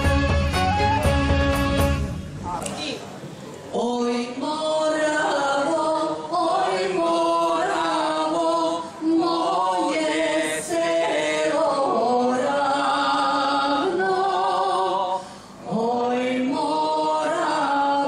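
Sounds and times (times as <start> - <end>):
group singing without instruments: 3.7 - 18.0.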